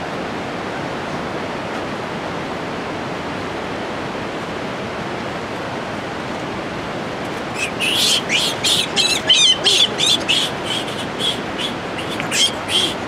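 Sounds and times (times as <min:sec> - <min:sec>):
steady rushing noise: 0:05.8 - 0:13.0
squeaky animal calls: 0:07.6 - 0:13.0.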